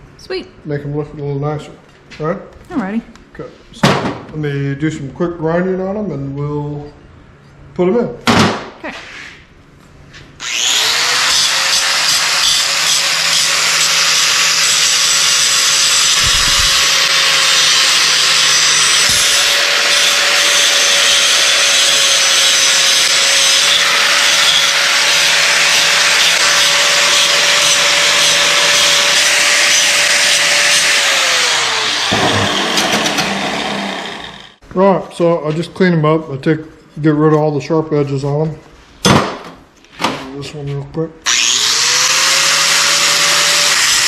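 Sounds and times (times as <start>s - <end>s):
angle grinder running: 10.4s - 34.6s, 41.3s - 44.0s.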